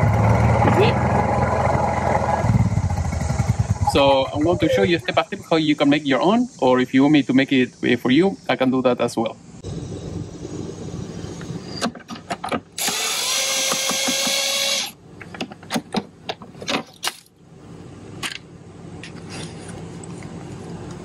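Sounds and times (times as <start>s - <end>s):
cordless impact driver running: 12.8s - 15.0s.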